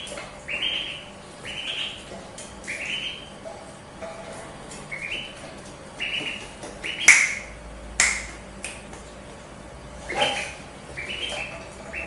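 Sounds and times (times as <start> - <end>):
duckling peeping: 0.0 - 8.8, 10.0 - 12.0
finger snaps: 7.0 - 7.4, 8.0 - 9.0.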